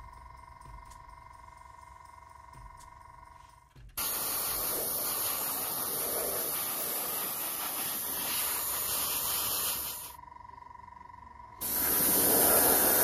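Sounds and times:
airbrush hissing: 0:04.0 - 0:10.2, 0:11.6 - 0:13.0.

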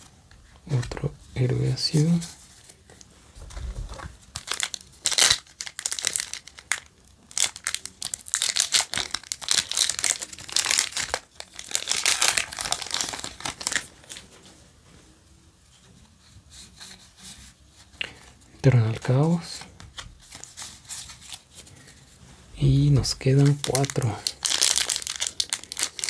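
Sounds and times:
foil wrapper crinkling and tearing: 0:04.3 - 0:14.2, 0:23.0 - 0:26.0.

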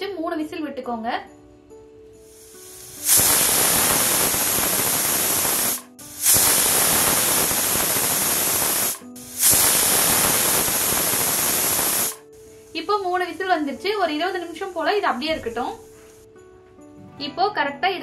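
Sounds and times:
pressure cooker whistling: 0:02.4 - 0:12.3.

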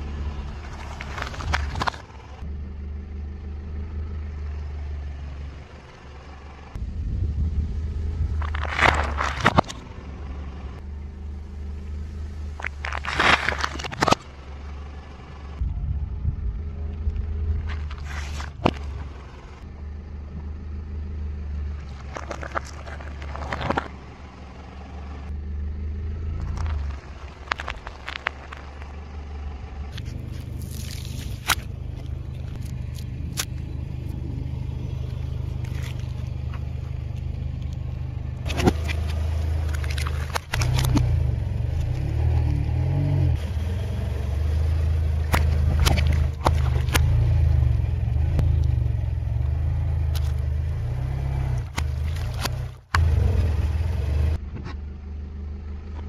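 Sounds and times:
car engine humming: 0:00.0 - 0:56.0
tyre crushing objects: 0:08.4 - 0:09.8, 0:12.6 - 0:14.2, 0:45.3 - 0:47.2, 0:51.6 - 0:53.2.

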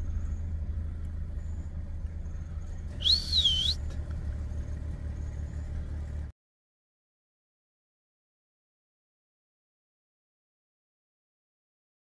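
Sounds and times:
vehicle engine idling: 0:00.0 - 0:06.3
wavering high whistle: 0:03.0 - 0:03.8.

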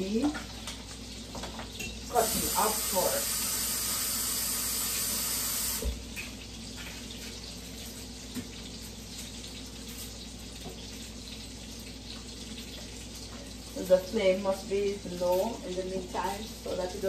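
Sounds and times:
tap running into sink: 0:01.3 - 0:07.0.

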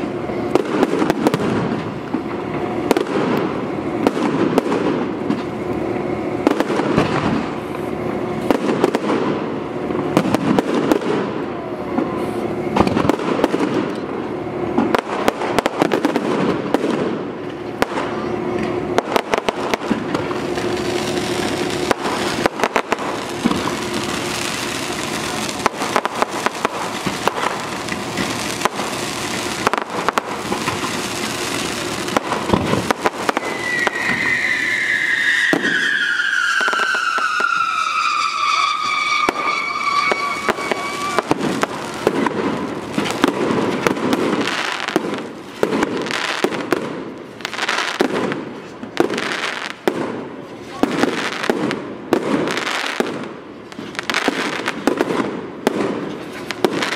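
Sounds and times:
fireworks crackling: 0:00.0 - 0:56.9
firework shells banging: 0:14.8 - 0:47.0
firework whistle falling: 0:18.0 - 0:45.0.

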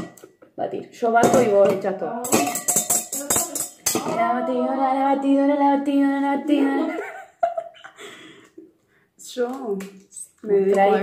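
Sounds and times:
jingling percussion: 0:02.3 - 0:04.1.

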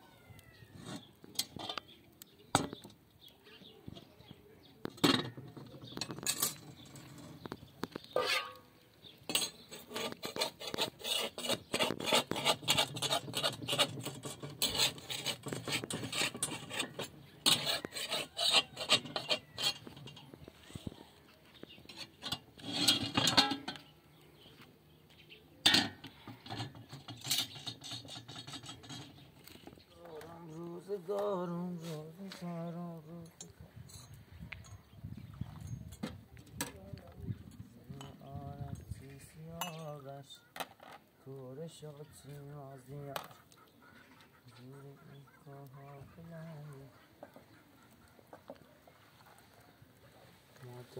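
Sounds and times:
metal spatula scraping a griddle: 0:05.0 - 0:20.9, 0:21.8 - 0:23.9, 0:25.9 - 0:29.7.

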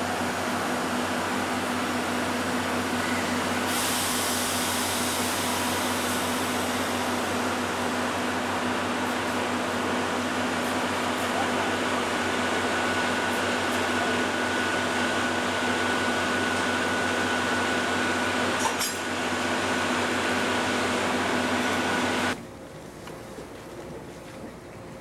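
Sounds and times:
machinery hum: 0:00.0 - 0:25.0.

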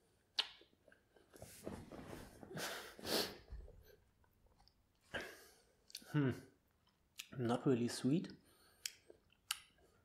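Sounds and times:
man breathing hard and snorting: 0:02.5 - 0:03.6.

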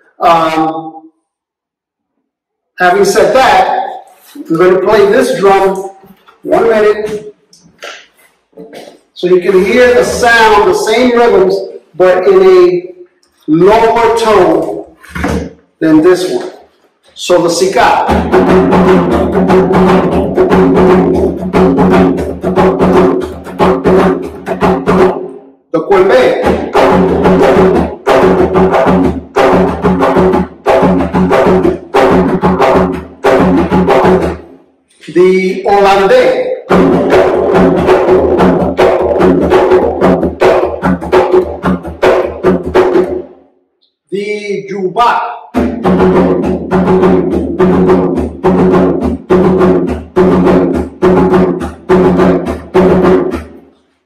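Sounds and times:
barrel drum played by hand: 0:17.9 - 0:25.3, 0:26.2 - 0:34.5, 0:36.7 - 0:43.3, 0:45.5 - 0:53.6.

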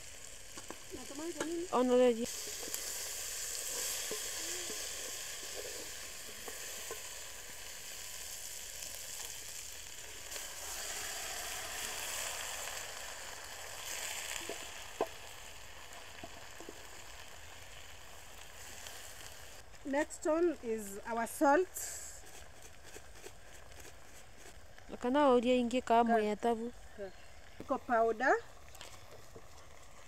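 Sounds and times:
food sizzling in a pot: 0:00.0 - 0:30.0
wooden spoon stirring and scraping: 0:02.3 - 0:07.2, 0:21.7 - 0:25.1.

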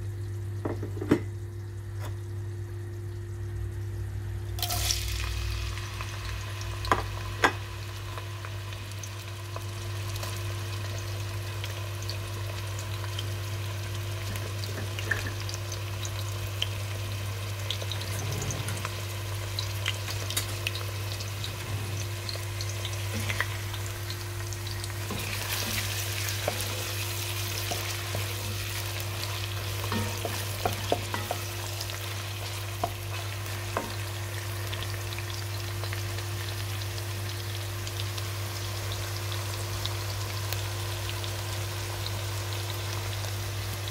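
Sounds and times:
onions sizzling in oil: 0:00.0 - 0:43.9.

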